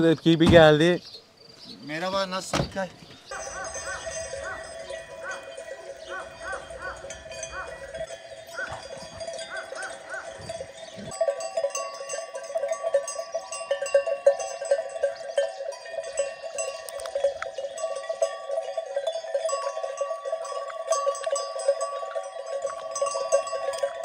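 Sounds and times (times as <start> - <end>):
livestock bells clanking: 3.3 - 24.0.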